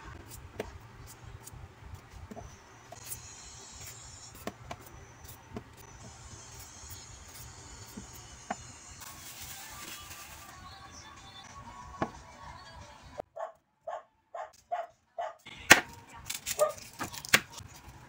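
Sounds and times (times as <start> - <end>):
peeler scraping vegetable skin: 16.3 - 17.8.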